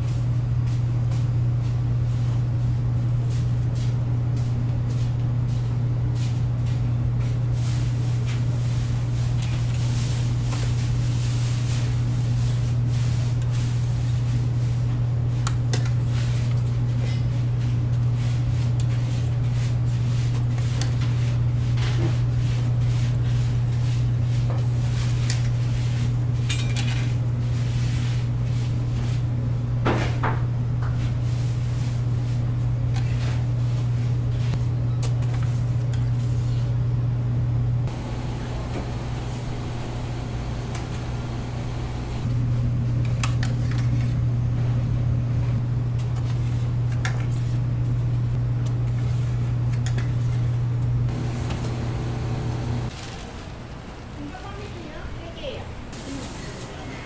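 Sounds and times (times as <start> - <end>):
low machine hum: 31.3 - 43.1, 47.7 - 54.5.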